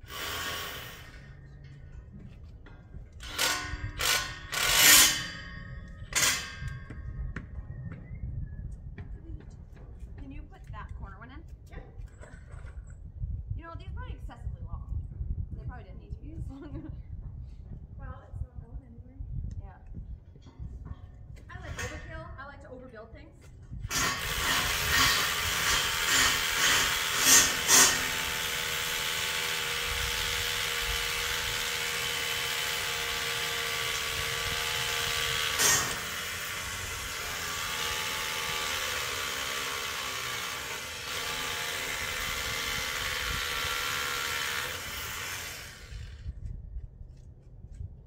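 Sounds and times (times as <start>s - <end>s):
hammer drill boring into concrete: 0.0s - 1.4s, 3.2s - 5.5s, 6.1s - 6.8s, 23.9s - 46.2s.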